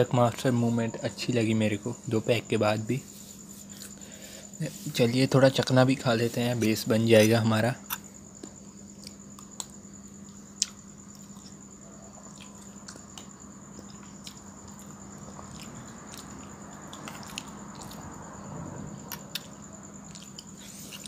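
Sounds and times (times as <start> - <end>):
wet chewing: 12.2 - 18.2, 19.1 - 21.0.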